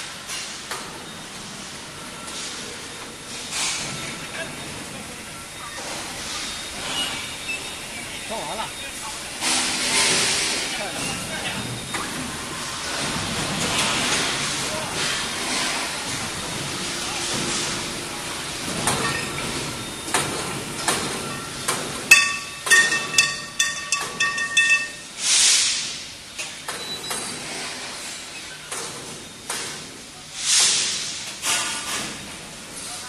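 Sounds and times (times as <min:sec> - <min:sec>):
steel pipes clanking together: 0:18.7 - 0:25.8.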